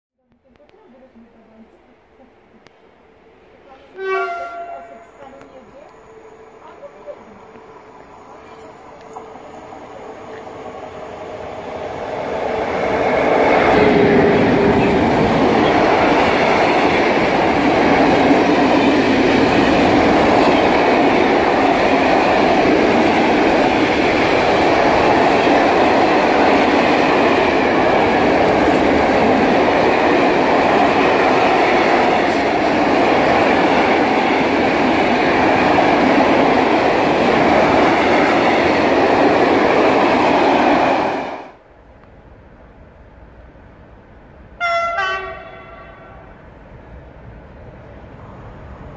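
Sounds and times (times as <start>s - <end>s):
train wheels rumbling on track: 3.6s - 48.9s
locomotive whine: 4.0s - 41.5s.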